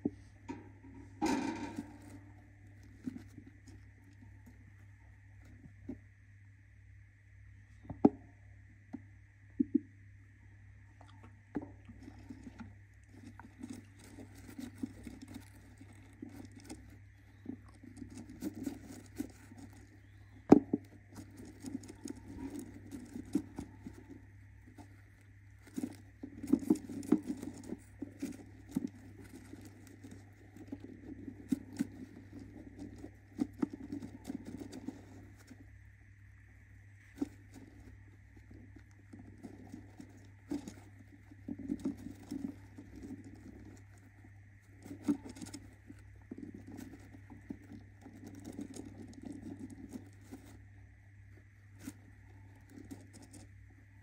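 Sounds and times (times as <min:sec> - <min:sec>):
claws scratching on wood: 0:11.9 - 0:35.8, 0:36.9 - 0:54.0.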